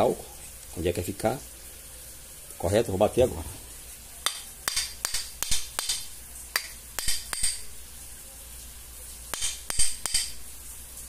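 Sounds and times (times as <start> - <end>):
hammer tapping steel shaft: 4.2 - 7.7, 9.3 - 10.4.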